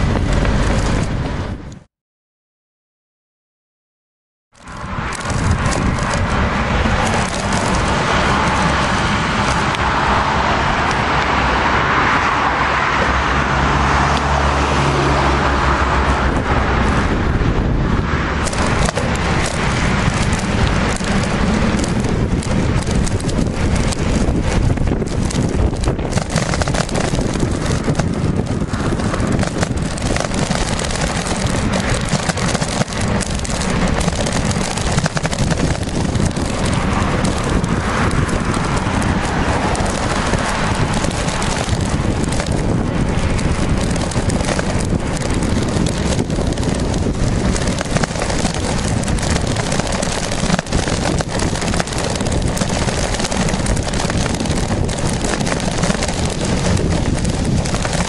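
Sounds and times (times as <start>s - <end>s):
wind buffeting microphone: 0.0s - 1.9s, 4.6s - 58.0s.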